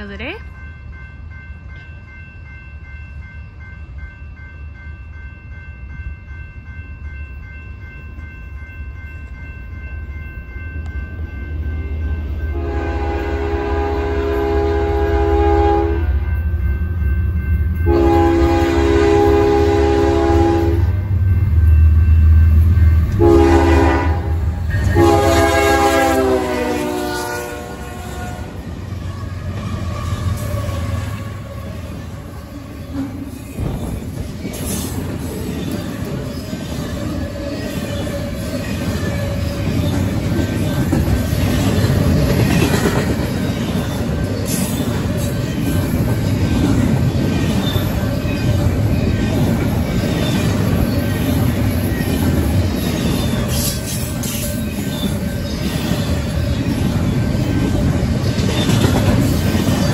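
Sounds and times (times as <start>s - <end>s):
train horn blasts: 12.5s - 16.3s, 17.8s - 20.9s, 23.1s - 31.8s.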